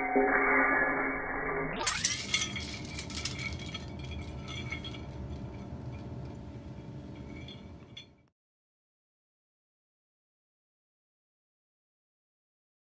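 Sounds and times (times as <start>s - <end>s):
low steady hum: 1.2s - 8.3s
glass clinking on concrete: 1.9s - 8.3s.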